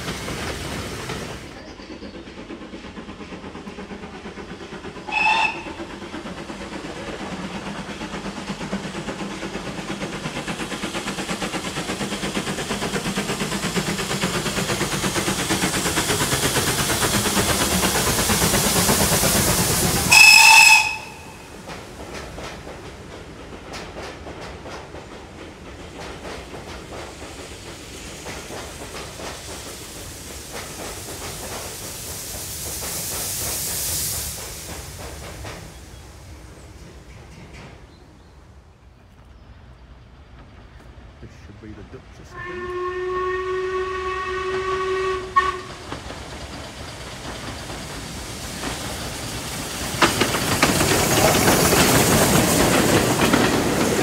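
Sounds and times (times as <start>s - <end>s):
steam locomotive chuffing: 0.0s - 54.0s
steam whistle: 5.1s - 5.8s, 20.1s - 21.4s, 42.3s - 45.8s.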